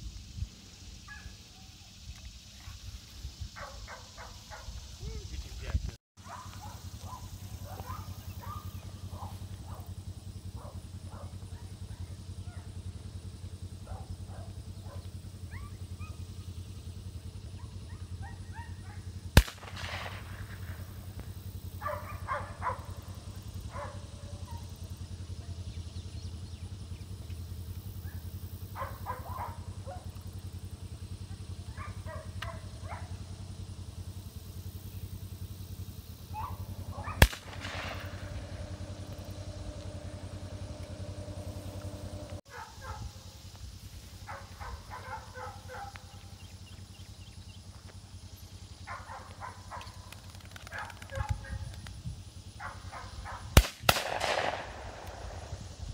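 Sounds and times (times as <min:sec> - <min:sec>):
low background rumble: 0:00.0 - 0:55.9
birds chirping: 0:00.5 - 0:19.3, 0:21.7 - 0:43.0, 0:44.3 - 0:51.8
shotgun shot with echo: 0:19.4 - 0:21.0, 0:37.0 - 0:42.3, 0:53.6 - 0:55.6.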